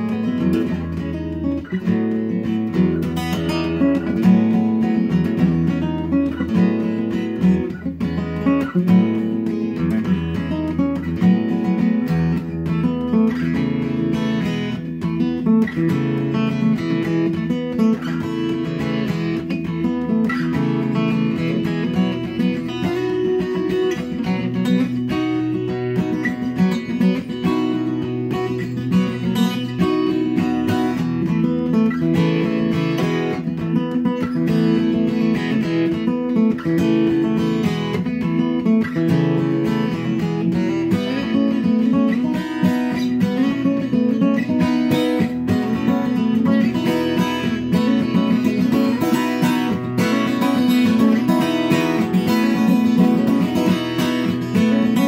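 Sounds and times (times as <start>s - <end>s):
acoustic guitar strumming: 0.0s - 55.0s.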